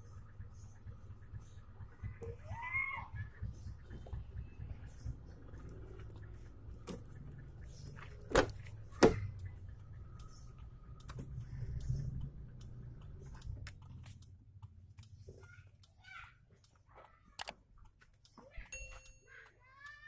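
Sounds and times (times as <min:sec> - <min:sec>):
car engine idling: 0:00.0 - 0:15.9.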